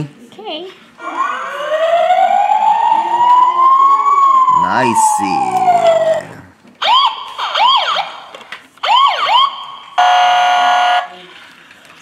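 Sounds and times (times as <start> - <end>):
toy siren whoops: 1.0 - 6.2.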